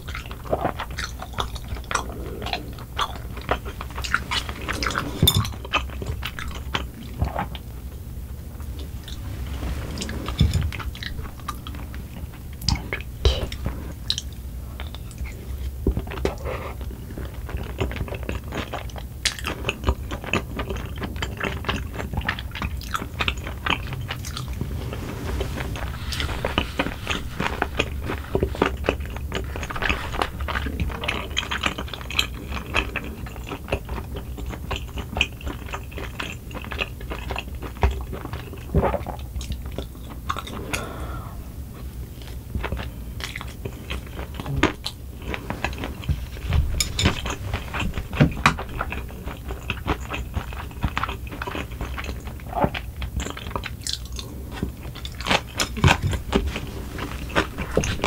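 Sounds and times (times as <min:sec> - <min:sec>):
close chewing: 0:00.0 - 0:41.0, 0:41.7 - 0:58.0.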